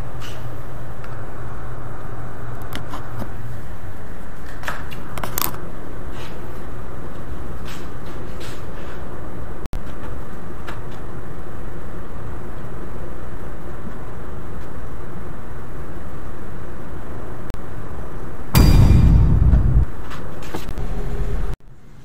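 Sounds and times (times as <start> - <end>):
loud burst of noise: 18.6 - 19.9.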